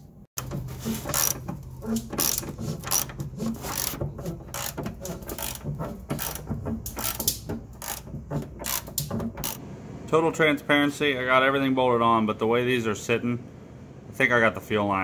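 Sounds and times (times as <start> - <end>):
steady low hum: 0.4 - 15.0
ratchet wrench clicking: 3.7 - 4.0, 4.6 - 9.6.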